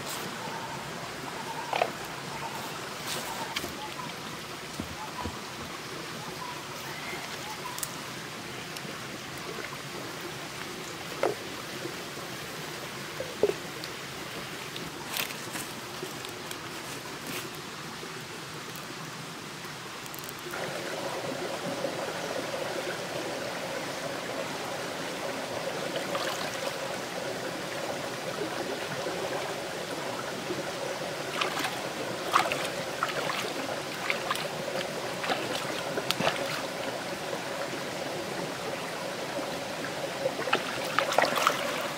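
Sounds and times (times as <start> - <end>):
stream trickling over rocks: 0.0 - 41.9
hands splashing in water: 31.4 - 34.5.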